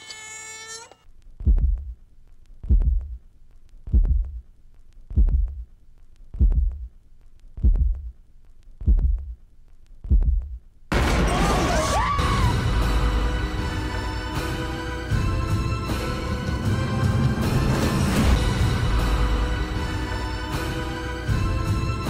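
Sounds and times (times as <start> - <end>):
deep heartbeat thumps: 1.4 - 2.0, 2.6 - 3.2, 3.8 - 4.5, 5.1 - 5.7, 6.3 - 7.0, 7.6 - 8.2, 8.8 - 9.4, 10.0 - 10.6.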